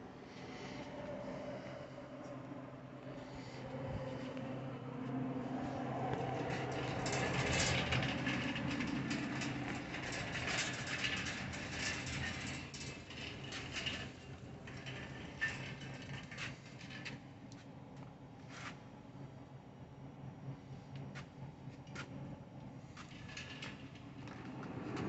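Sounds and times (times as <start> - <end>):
steady low hum: 0.0 - 25.0
shopping cart wheels rattling: 6.4 - 17.1.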